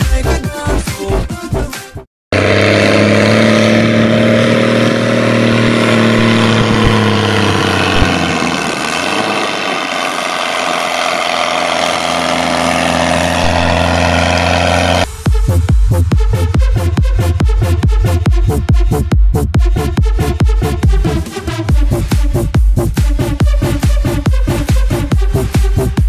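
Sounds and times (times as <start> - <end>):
music: 0.0 - 2.1, 15.1 - 26.0
tractor diesel engine under load: 2.3 - 19.1.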